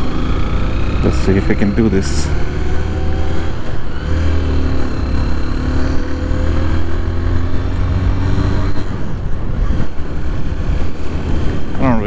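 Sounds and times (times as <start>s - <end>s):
motorcycle engine running: 0.0s - 12.0s
wind rumble on microphone: 5.9s - 12.0s.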